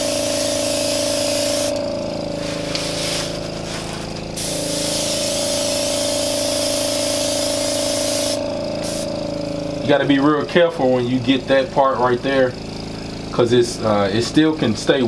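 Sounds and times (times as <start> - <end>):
airbrush spraying hiss: 0.0 - 9.3
steady hum: 0.0 - 15.0.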